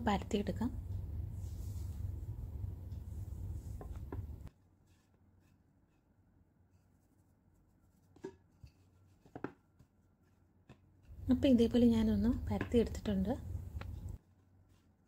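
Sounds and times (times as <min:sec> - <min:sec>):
low background rumble: 0:00.0 - 0:04.5
rolling pin taps on wooden board: 0:09.3 - 0:09.6.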